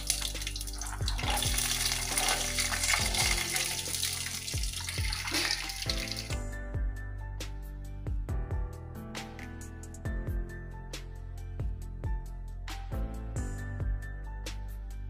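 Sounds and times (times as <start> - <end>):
peanuts sizzling in oil: 0.0 - 6.3
soft background music: 0.0 - 15.0.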